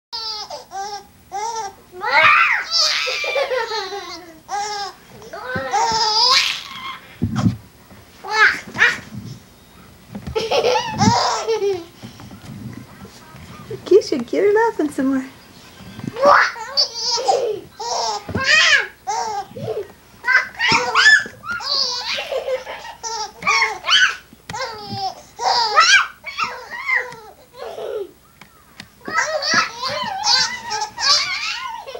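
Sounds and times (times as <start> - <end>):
baby laughing: 0.2 - 7.1, 10.3 - 12.0, 16.2 - 28.2, 29.1 - 31.9.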